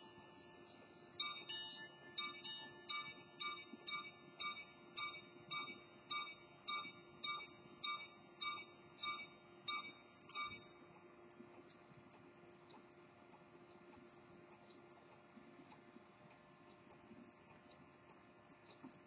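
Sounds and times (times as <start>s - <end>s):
pocket watch gong chiming: 1.2s - 10.7s.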